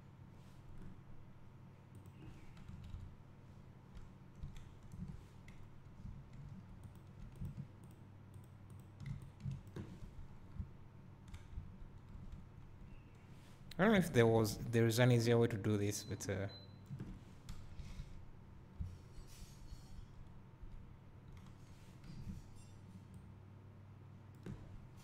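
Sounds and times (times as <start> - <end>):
computer mouse clicks: 6.3 - 9.9, 11.2 - 12.5.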